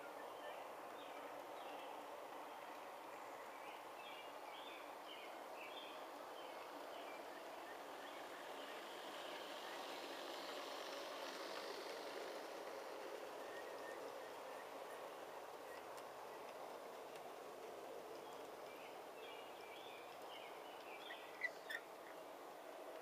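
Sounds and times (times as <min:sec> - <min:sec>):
model train wheels rolling on track: 0:00.0 - 0:23.0
faint bird chirps: 0:18.4 - 0:22.2.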